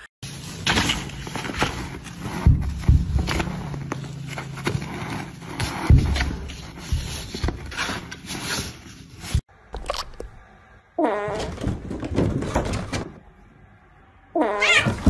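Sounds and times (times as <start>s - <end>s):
paw scraping on cardboard: 1.6s - 8.8s.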